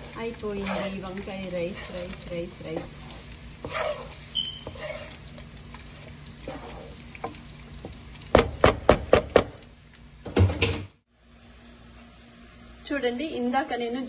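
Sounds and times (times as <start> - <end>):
rice stirred in a pan: 0.0 - 8.7.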